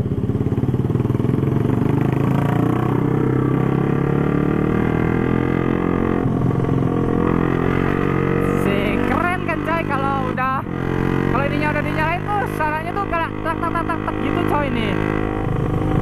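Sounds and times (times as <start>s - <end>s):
motorcycle engine running: 0.0s - 16.0s
wind and road noise: 0.0s - 16.0s.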